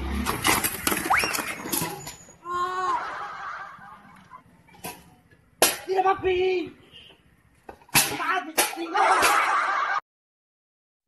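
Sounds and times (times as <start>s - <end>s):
person's drawn-out vocal cry: 2.4s - 3.0s.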